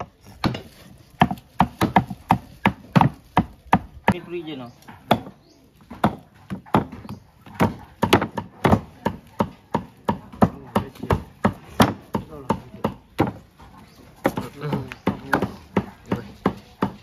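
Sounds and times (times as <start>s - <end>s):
knife chopping meat on board: 0.4s - 4.2s, 4.9s - 13.4s.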